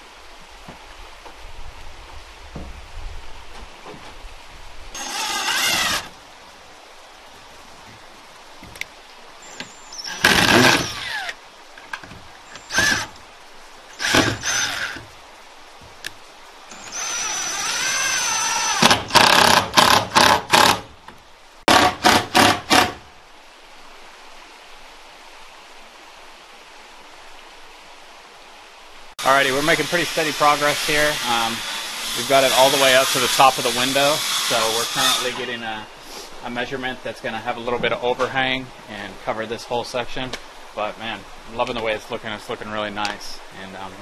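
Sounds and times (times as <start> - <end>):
power tool bursts: 5.0 - 6.1, 10.1 - 11.4, 12.6 - 13.1, 14.0 - 15.0, 16.7 - 20.9, 29.4 - 35.6.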